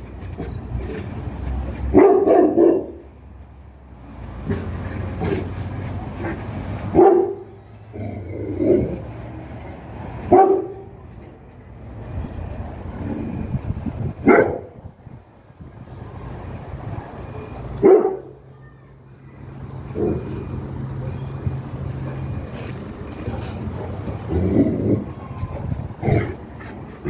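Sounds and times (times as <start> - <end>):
dog barking: 1.9 - 3.0, 6.9 - 7.5, 10.3 - 10.9, 14.2 - 14.7, 17.8 - 18.4.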